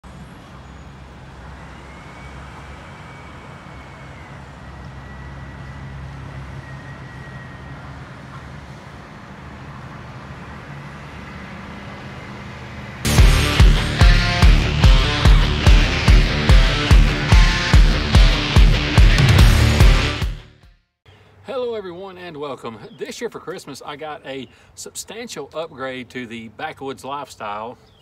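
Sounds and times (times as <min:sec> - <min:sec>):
faint high whine: 0:00.4 - 0:07.9.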